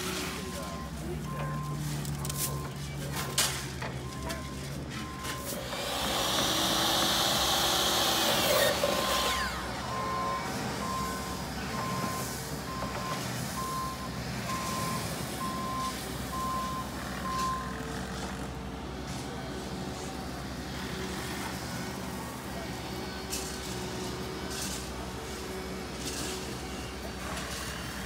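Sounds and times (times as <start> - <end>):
vehicle reversing alarm beeping: 0.0 - 18.5
miter saw cutting: 5.5 - 11.0.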